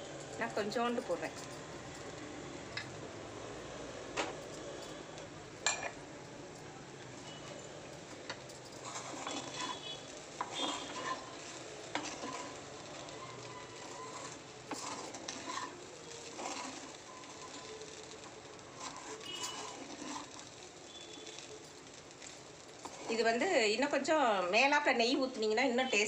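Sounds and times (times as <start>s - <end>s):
faint sizzle: 0.0s - 26.0s
spatula scraping steel pan: 8.7s - 21.5s, 22.2s - 23.5s.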